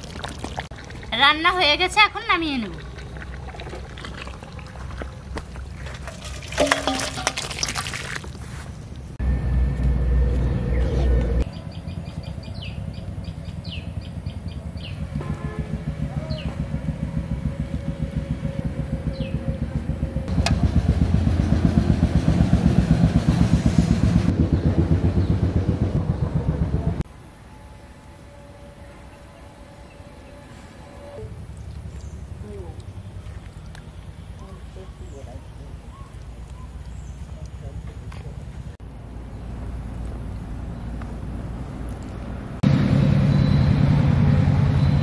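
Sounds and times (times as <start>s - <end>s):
wet food pouring: 0.0s - 1.5s, 2.6s - 8.6s
low steady rumble: 8.7s - 45.0s
small engine idling: 11.8s - 27.0s.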